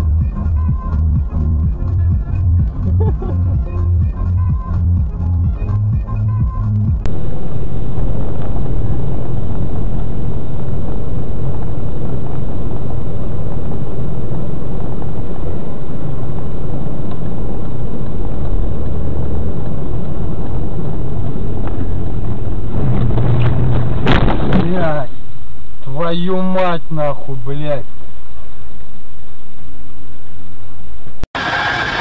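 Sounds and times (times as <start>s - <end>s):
electronic music: 0.0s - 7.1s
vehicle rumble with road noise: 0.0s - 32.0s.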